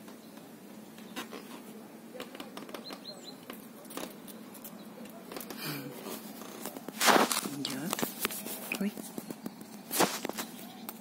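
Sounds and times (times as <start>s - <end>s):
small bird chirps: 2.8s - 3.5s.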